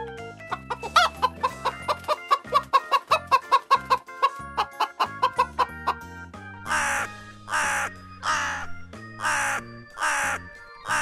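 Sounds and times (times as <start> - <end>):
chickens clucking: 0.3 - 7.9
crow cawing: 6.7 - 11.0.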